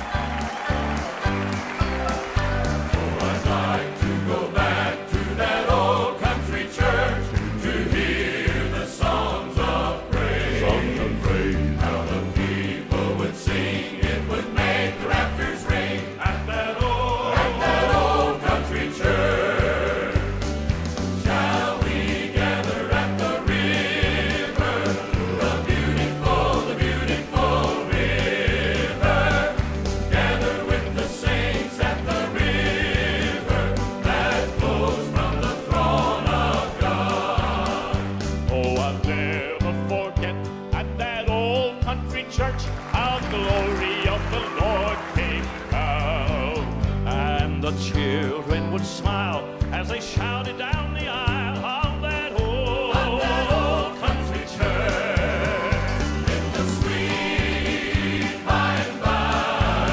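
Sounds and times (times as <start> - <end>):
choir singing: 0.0 - 39.8, 52.3 - 59.9
instrumental accompaniment: 0.0 - 59.9.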